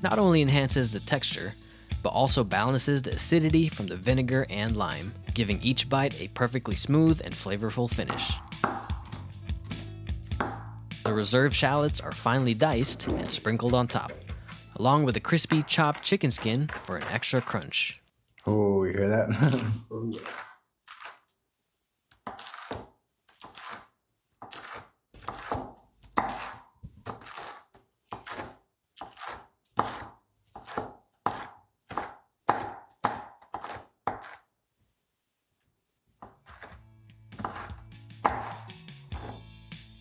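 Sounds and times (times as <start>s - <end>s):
background music: 0.0s - 17.7s, 36.7s - 40.0s
knife chopping crunchy chicken skin: 8.1s - 10.8s, 22.2s - 34.5s, 36.2s - 39.5s.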